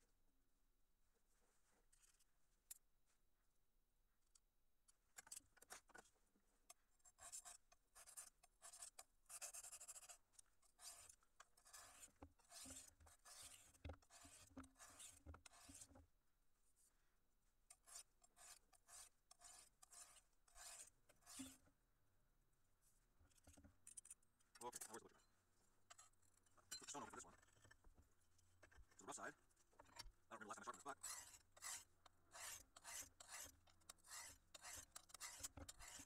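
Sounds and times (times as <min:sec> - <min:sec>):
knife scraping on sharpening stone: 0:07.2 - 0:15.9, 0:17.7 - 0:21.6, 0:30.7 - 0:36.0.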